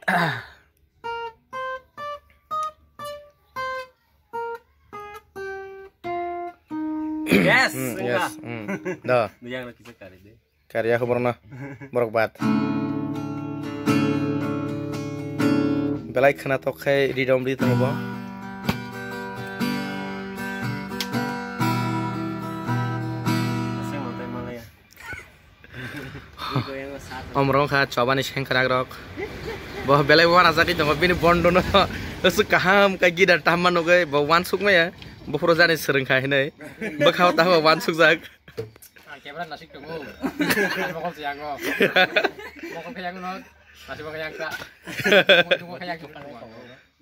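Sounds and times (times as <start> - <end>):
acoustic guitar picked melody: 0.9 - 9.3, 12.4 - 24.7.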